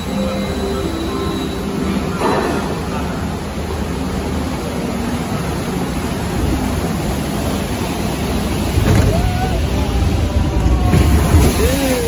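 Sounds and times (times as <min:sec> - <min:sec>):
water rushing along flume: 0:00.0 - 0:12.0.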